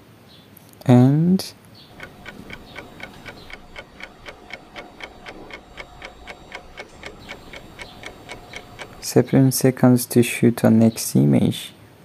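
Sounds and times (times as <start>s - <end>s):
clock ticking: 1.9s - 9.3s.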